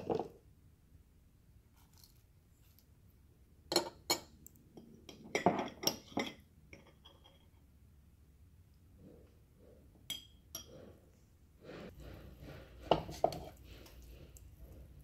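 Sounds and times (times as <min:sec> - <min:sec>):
metal spoon clinking on jar and bowl: 0:05.0 - 0:07.5.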